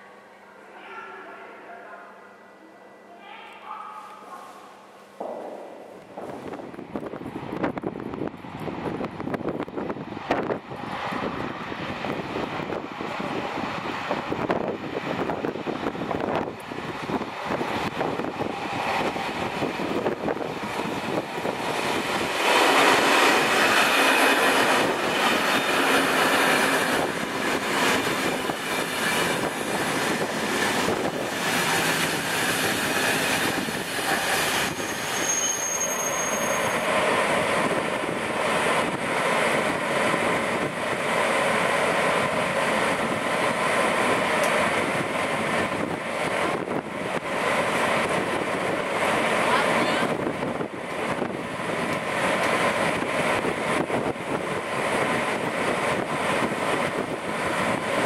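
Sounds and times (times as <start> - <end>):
train wheels rushing on rail: 5.2 - 58.0
high-pitched wheel squeal: 34.4 - 36.9.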